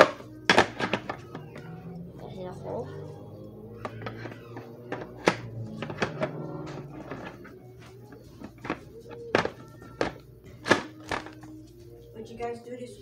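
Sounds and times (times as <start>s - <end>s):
plastic toy knocking and clicking: 0.0s - 1.6s, 3.8s - 11.4s.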